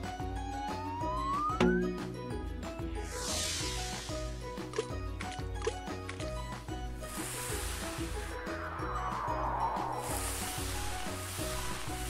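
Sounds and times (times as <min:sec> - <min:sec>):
cartoon background music: 0:00.0 - 0:12.0
whistle-like tone sliding upward: 0:00.4 - 0:01.8, 0:07.8 - 0:11.0.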